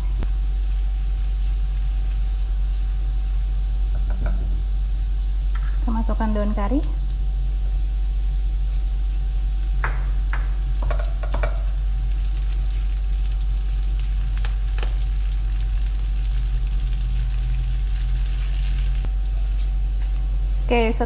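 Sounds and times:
food sizzling in a wok: 0.0 - 21.0
steady low hum: 0.0 - 21.0
spatula scraping and tapping pan: 10.8 - 11.6.

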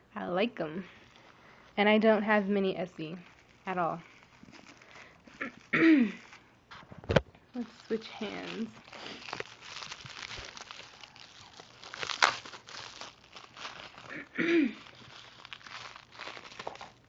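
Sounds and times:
bubble wrap crinkling: 0.6 - 17.0.

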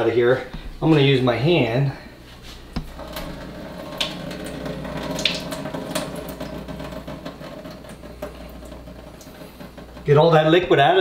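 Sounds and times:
liquid trickling into a metal sink: 2.8 - 10.5.

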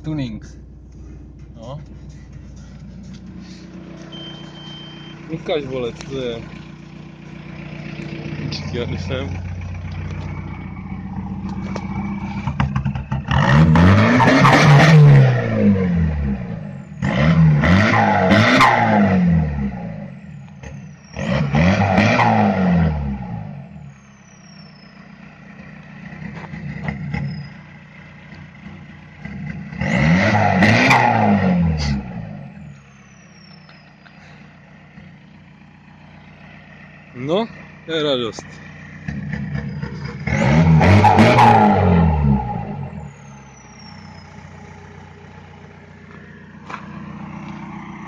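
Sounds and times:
diesel engine revving: 0.0 - 48.0
turbo whistle: 4.1 - 5.2.

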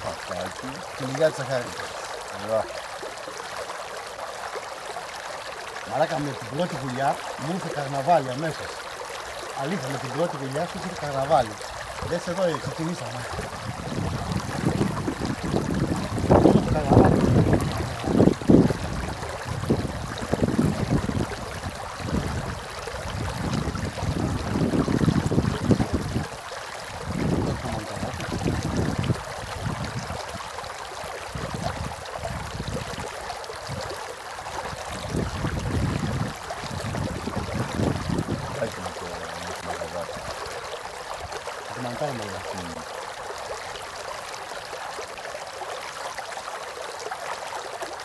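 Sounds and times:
river water rushing: 0.0 - 48.0
wind gusting on microphone: 11.7 - 30.4, 31.3 - 33.1, 34.7 - 40.3.

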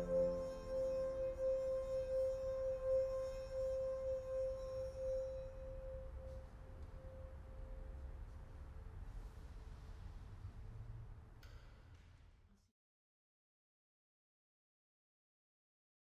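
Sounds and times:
singing wine glass tone: 0.0 - 6.1.

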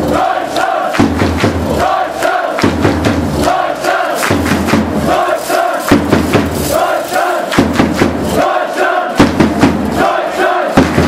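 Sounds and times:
crowd chanting: 0.0 - 11.0
rhythmic hand-clapping: 0.0 - 11.0
bass drum beating: 1.0 - 2.0, 2.6 - 8.4, 9.2 - 10.0, 10.7 - 11.0.

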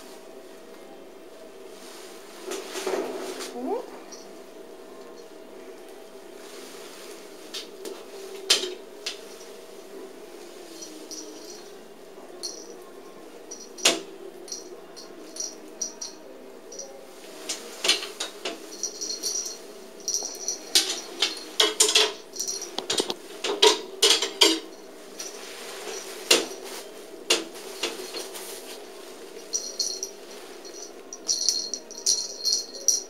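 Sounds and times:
cat toy jingling: 18.6 - 23.0, 29.4 - 33.0.

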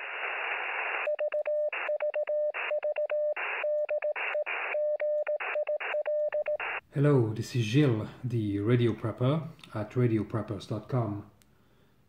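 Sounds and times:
radio static hiss: 0.0 - 1.1, 3.4 - 4.8, 5.4 - 6.8
morse code tone: 1.0 - 6.8.

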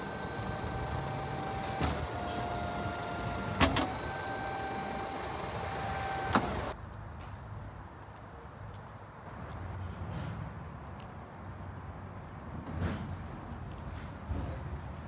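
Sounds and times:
hydraulic pump whine: 0.0 - 6.8.

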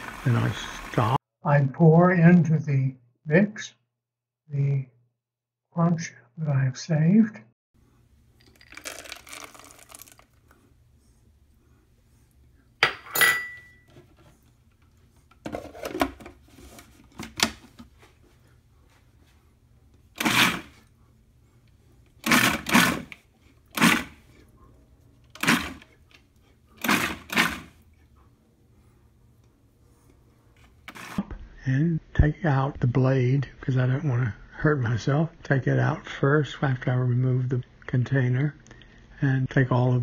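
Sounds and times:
food processor pulsing: 20.2 - 20.8, 22.2 - 24.2, 25.3 - 25.9, 26.8 - 27.8.

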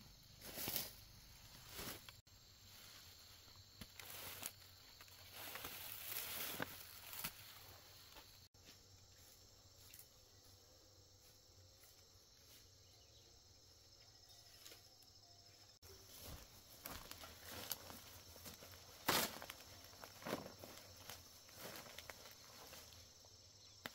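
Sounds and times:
insects chirring: 0.0 - 23.9
foliage rustling and crackling: 0.4 - 8.5, 16.0 - 23.2.

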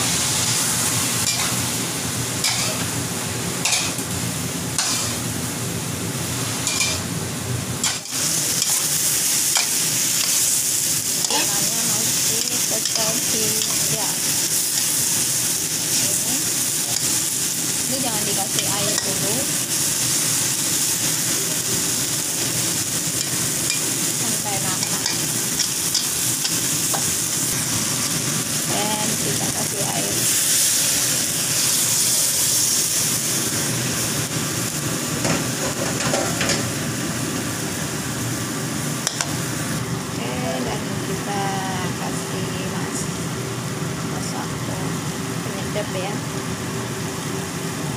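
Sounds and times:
food sizzling in a wok: 0.0 - 47.9
metal spatula scraping pan: 1.2 - 1.6, 2.4 - 2.9, 4.8 - 5.2, 6.6 - 7.0
spatula scraping: 2.4 - 2.9, 4.8 - 5.2.

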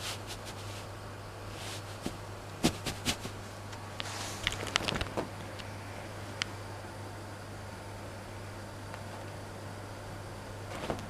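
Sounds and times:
cloth rustling: 1.5 - 3.4
kittens scuffling on a couch: 1.5 - 3.4, 10.7 - 11.0.

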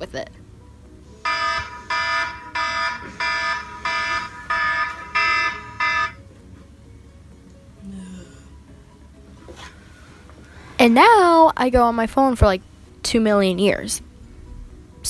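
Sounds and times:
smartphone alarm beeping: 1.2 - 6.2.

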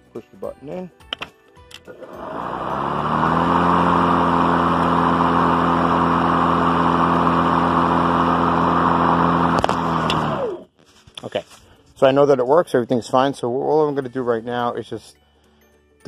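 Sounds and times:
electric lawn mower running: 1.9 - 10.7.

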